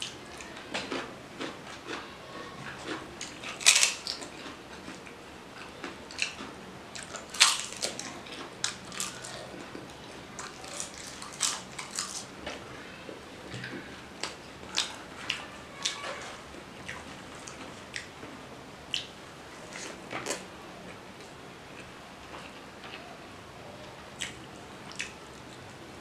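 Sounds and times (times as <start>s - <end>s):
crisp papad crunching: 10.4s - 12.3s
chewing clicks: 24.2s - 25.2s.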